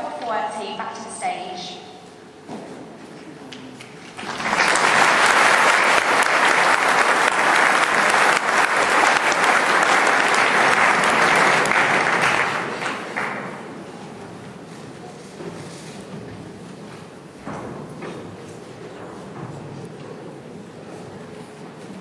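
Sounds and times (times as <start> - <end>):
audience clapping: 3.5 - 14.1.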